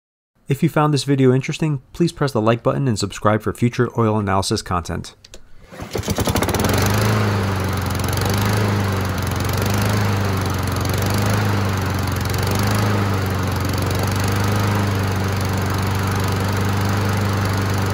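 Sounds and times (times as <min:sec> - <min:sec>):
lawn mower engine running: 0:05.5 - 0:17.9.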